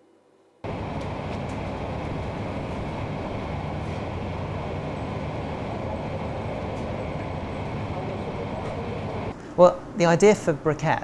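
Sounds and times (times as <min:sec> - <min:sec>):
steady rumbling noise: 0:00.6 - 0:09.4.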